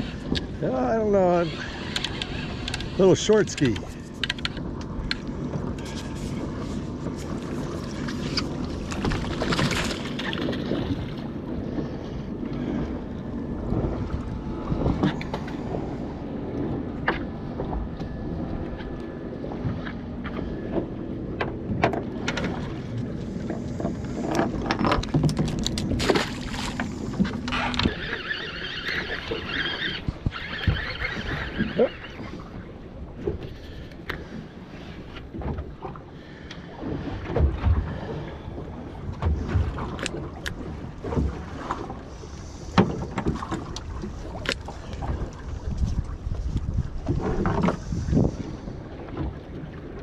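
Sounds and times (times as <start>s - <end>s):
water lapping at boat hull: 0.0s - 50.0s
fishing reel clicks and knocks: 1.6s - 5.2s
wind on microphone: 42.3s - 50.0s.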